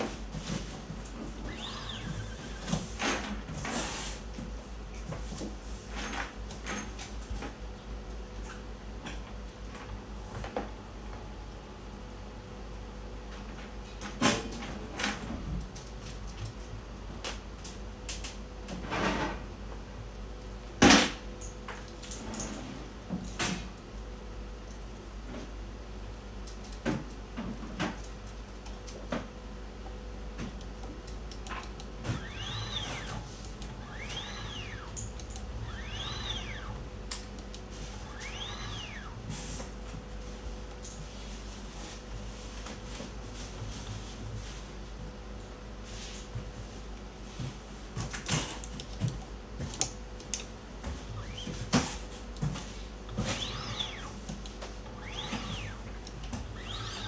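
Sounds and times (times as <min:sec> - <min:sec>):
steady mains hum: 0:00.0 - 0:57.0
short rising and falling whines: 0:01.4 - 0:02.7, 0:32.0 - 0:37.0, 0:37.8 - 0:39.4, 0:53.2 - 0:54.2, 0:54.8 - 0:57.0.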